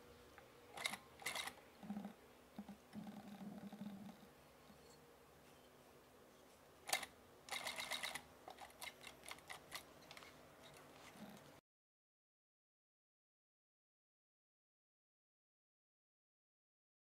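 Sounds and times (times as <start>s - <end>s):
sewing machine stitching: 0.8s - 1.6s, 6.9s - 10.3s.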